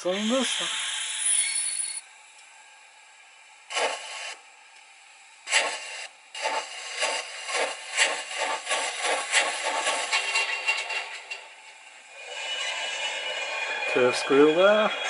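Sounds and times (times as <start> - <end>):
steam hiss from speaker: 0.0 - 1.6, 3.7 - 4.4, 5.4 - 15.0
steam locomotive chuffs: 3.7 - 4.4, 5.5 - 15.0.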